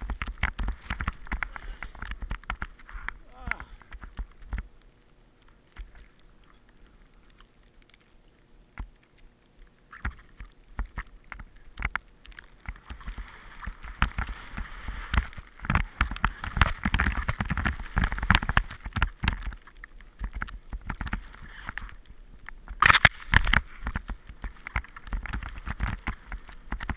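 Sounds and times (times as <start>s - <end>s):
skis swishing through powder snow: 12.8s - 18.2s.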